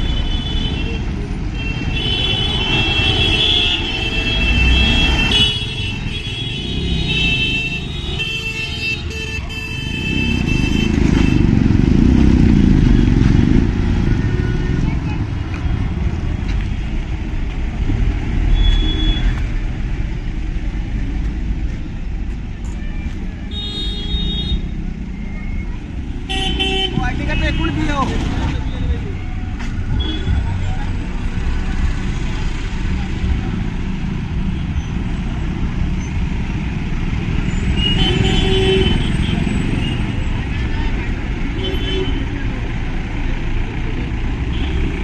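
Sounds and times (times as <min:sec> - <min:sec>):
vehicles rumbling: 0:00.0 - 0:45.0
high vehicle horn: 0:01.6 - 0:11.5, 0:23.5 - 0:24.7, 0:26.3 - 0:27.8, 0:37.8 - 0:40.0, 0:41.6 - 0:42.3.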